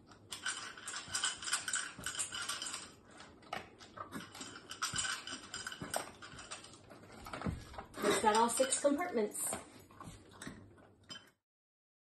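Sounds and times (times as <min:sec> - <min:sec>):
metal tin clinking and scraping: 0:03.6 - 0:09.5.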